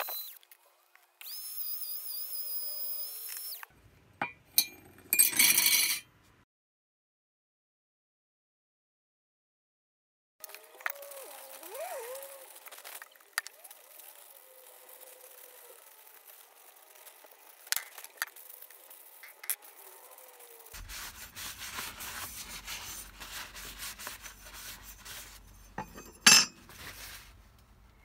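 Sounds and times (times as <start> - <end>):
paper towel rubbing metal: 11.1 - 26.0, 26.6 - 27.4.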